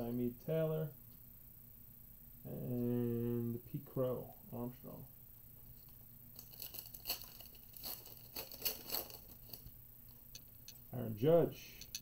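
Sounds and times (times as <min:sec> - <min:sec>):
foil wrapper tearing and crinkling: 0:06.4 - 0:09.7.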